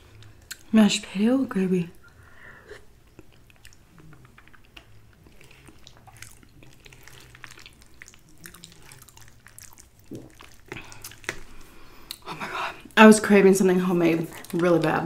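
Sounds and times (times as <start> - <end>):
person chewing soft food: 2.0 - 13.0.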